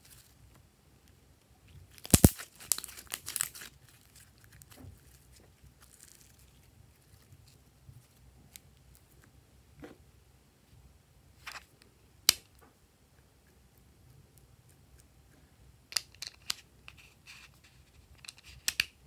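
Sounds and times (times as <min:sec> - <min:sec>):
slime crackling and popping: 0:01.9 - 0:05.2.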